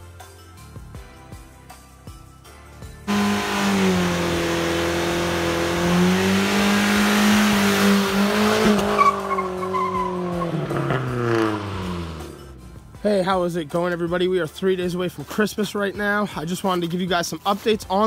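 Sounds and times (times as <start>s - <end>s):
engine revving high: 3.1s - 12.6s
tyres screeching on pavement: 7.6s - 11.1s.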